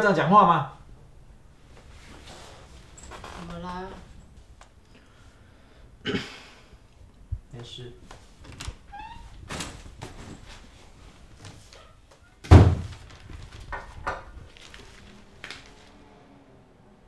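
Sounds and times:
door slamming shut: 12.4s - 13.1s.

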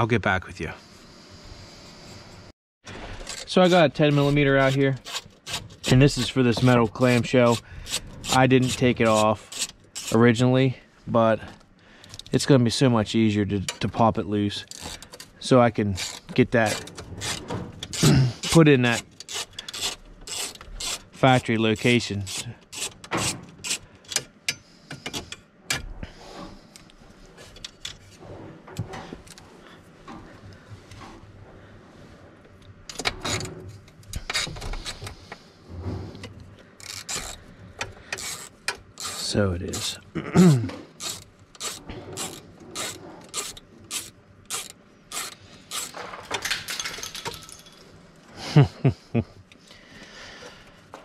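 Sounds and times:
ratchet wrench ratcheting: 7.2s - 10.2s, 16.0s - 21.2s, 22.0s - 24.6s, 36.8s - 40.0s, 40.9s - 46.6s
metal parts knocking and rattling: 14.6s - 21.2s, 36.2s - 40.0s, 40.9s - 48.0s
ratchet wrench clicking: 19.1s - 21.1s, 36.8s - 37.4s, 38.1s - 40.0s, 41.0s - 46.0s.

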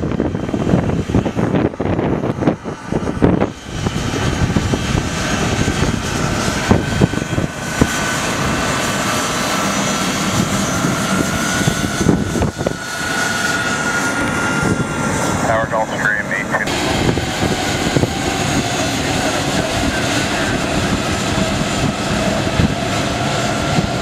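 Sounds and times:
jet engines whining: 0.0s - 24.0s.

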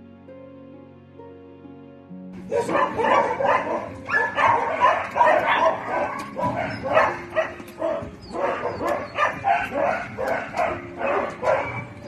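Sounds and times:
dogs barking: 2.4s - 12.0s.

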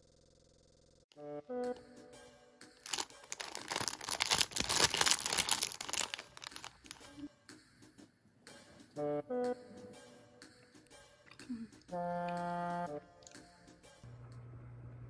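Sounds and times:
plastic wrapper crinkling and tearing: 2.8s - 7.2s.

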